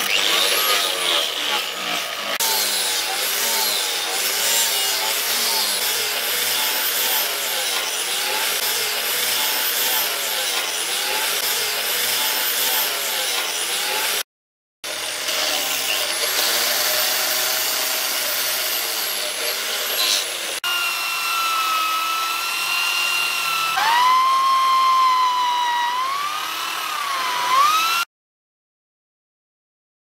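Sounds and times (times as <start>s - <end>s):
angle grinder sanding wood: 0.0s - 14.2s, 14.9s - 28.1s
electric drill whining: 14.9s - 28.1s.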